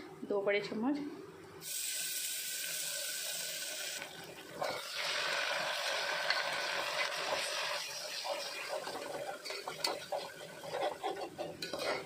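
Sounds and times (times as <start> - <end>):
paste sizzling in hot oil: 1.6 - 11.3.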